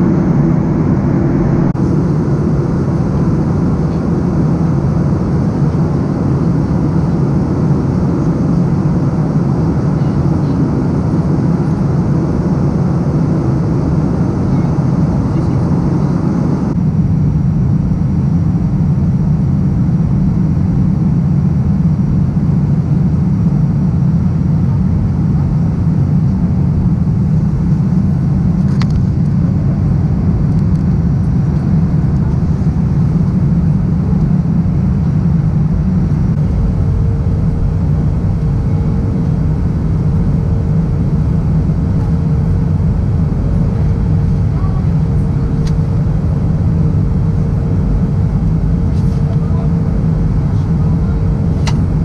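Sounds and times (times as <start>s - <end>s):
airplane cabin rumble: 0.0s - 52.0s
steady hum: 0.0s - 52.0s
short click: 51.6s - 51.8s.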